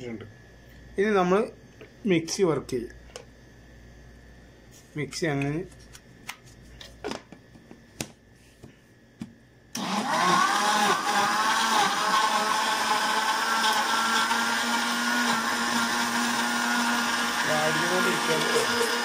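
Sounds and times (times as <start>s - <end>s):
mixer grinder motor whine: 9.7s - 19.0s.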